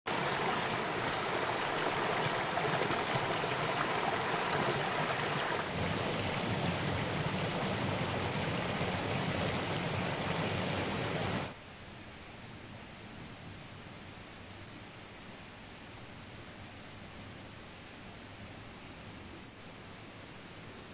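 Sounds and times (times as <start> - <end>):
stream babbling over boulders: 0.1 - 11.6.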